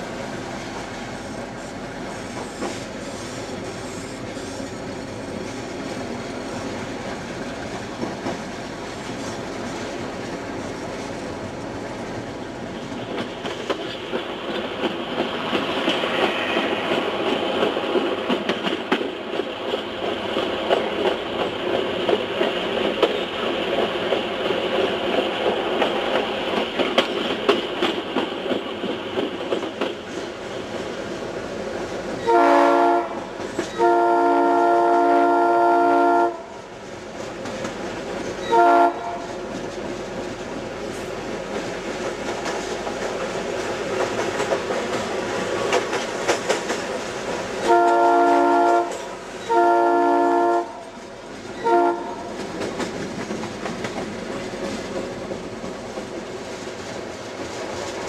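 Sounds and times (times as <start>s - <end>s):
train wheels on rails: 0.0s - 58.0s
clicking over rail joints: 0.7s - 31.0s, 33.3s - 33.8s, 37.0s - 38.5s, 39.1s - 48.0s, 50.8s - 58.0s
locomotive horn: 16.0s - 17.0s, 32.2s - 36.5s, 38.5s - 39.3s, 47.6s - 50.9s, 51.6s - 52.3s.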